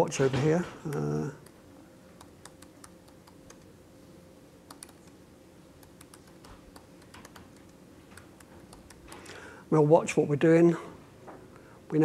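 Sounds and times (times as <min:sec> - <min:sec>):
laptop keyboard typing: 0:02.2 - 0:03.7, 0:04.7 - 0:05.2, 0:05.8 - 0:09.3.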